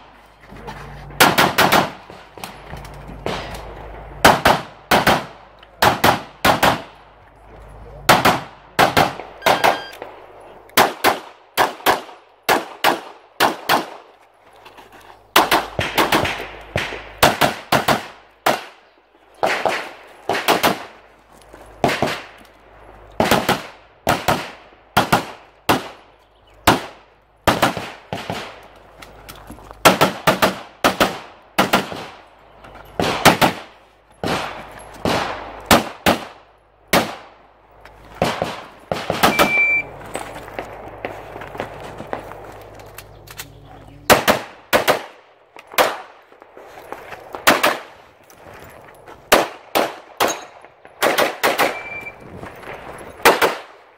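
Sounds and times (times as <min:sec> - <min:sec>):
pistol shots: 0:01.2 - 0:02.6, 0:03.2 - 0:07.0, 0:08.0 - 0:14.0, 0:15.4 - 0:18.8, 0:19.4 - 0:21.0, 0:23.2 - 0:26.0, 0:26.6 - 0:28.6, 0:29.8 - 0:32.3, 0:33.0 - 0:37.4, 0:38.2 - 0:39.9, 0:44.1 - 0:46.2, 0:47.4 - 0:48.0, 0:49.3 - 0:52.1, 0:53.2 - 0:53.8.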